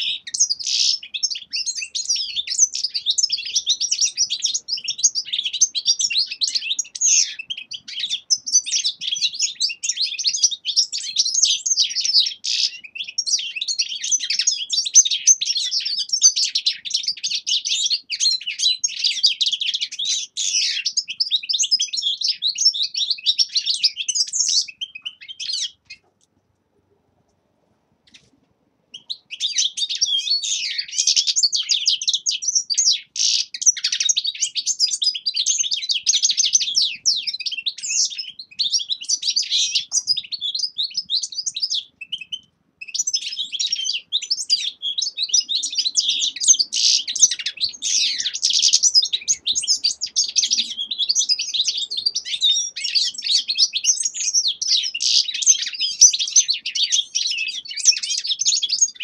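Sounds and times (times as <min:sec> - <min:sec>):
finches twittering: 0:00.0 - 0:26.0, 0:28.9 - 0:59.0.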